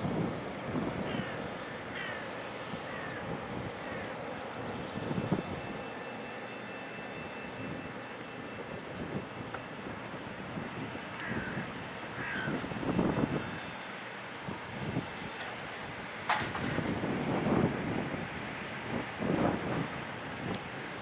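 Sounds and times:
jet engines taxiing: 0.0s - 21.0s
crow cawing: 1.1s - 4.2s, 11.1s - 12.6s.

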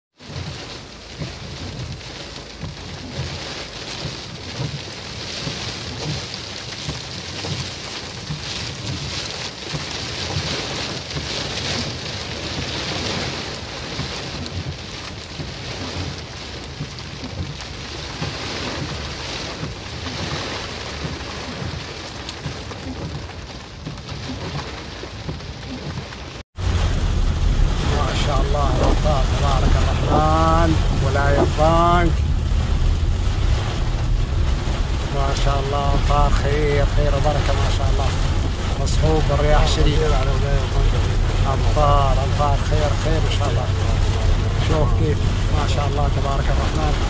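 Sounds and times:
heavy rain hiss: 26.6s - 47.0s
wind gusting on microphone: 26.6s - 47.0s.

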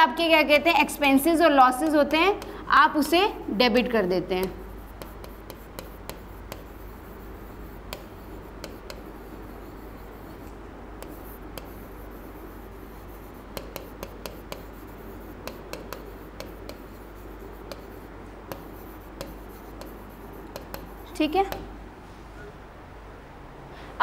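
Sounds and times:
steady low hum: 0.0s - 24.0s
stylus tapping and scratching on glass: 4.4s - 21.7s.

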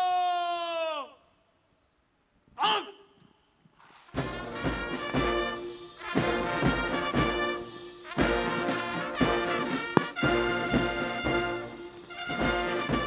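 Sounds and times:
brass band playing: 4.1s - 13.0s
low drum beats: 4.2s - 13.0s.

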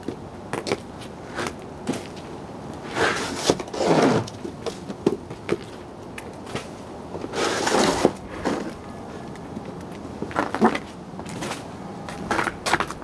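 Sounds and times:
scraping rushes: 7.2s - 9.3s.

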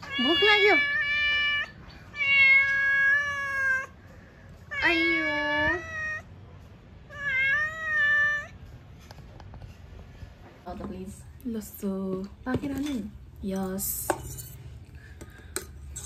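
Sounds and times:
cat meowing: 0.0s - 4.0s, 4.7s - 6.4s, 7.0s - 8.6s.

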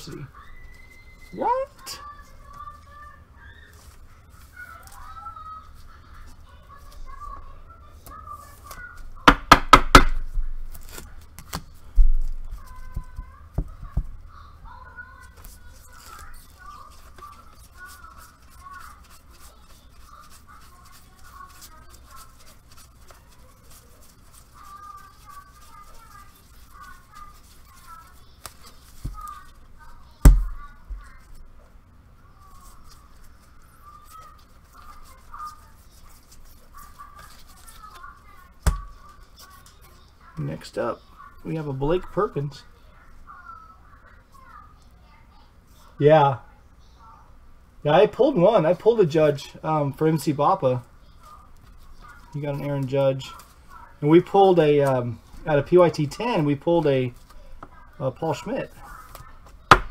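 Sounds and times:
trading cards rustling and clicking: 15.2s - 29.9s.

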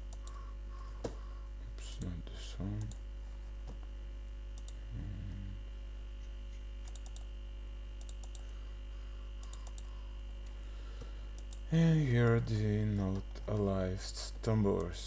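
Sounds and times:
computer mouse clicks: 0.0s - 0.4s, 2.8s - 3.0s, 4.6s - 4.8s, 6.8s - 7.3s, 8.0s - 8.6s, 9.4s - 10.6s, 11.4s - 11.7s
low electrical hum: 0.0s - 15.0s.

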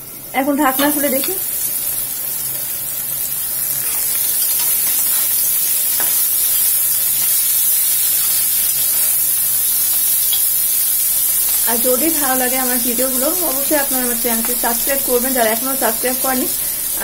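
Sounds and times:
vegetables sizzling in oil: 0.0s - 17.0s
spatula scraping a pan: 3.7s - 5.4s.

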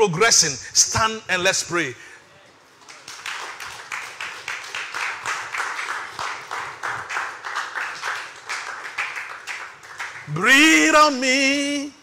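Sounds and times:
hands clapping: 2.8s - 10.4s.

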